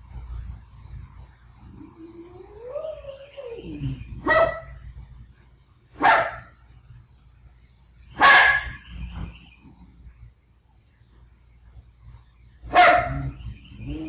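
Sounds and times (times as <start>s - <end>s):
dog howling: 1.7s - 4.8s
dog barking loudly: 4.2s - 4.8s, 6.0s - 6.5s, 8.2s - 8.9s, 12.7s - 13.4s.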